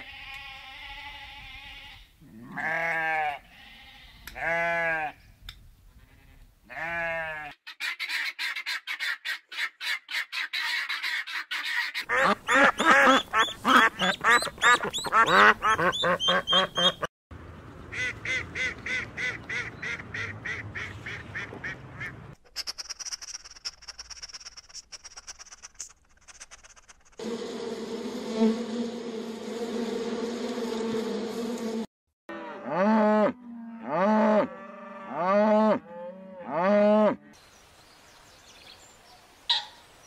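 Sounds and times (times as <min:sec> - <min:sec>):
ducks quacking: 0:07.8 - 0:17.1, 0:17.9 - 0:22.4
guinea fowl calling: 0:07.8 - 0:17.1, 0:39.5 - 0:39.8.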